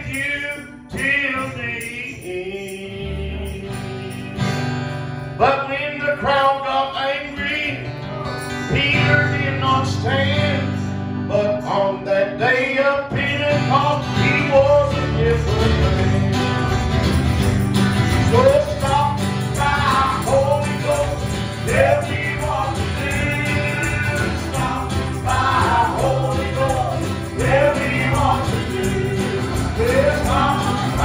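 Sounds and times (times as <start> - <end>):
man singing into a microphone: 0.0 - 16.8, 18.2 - 31.0
instrumental accompaniment: 15.5 - 31.0.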